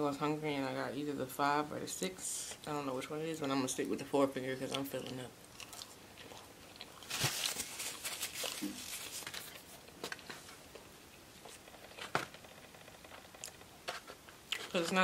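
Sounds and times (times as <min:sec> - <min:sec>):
chewing: 0:04.6 - 0:07.6.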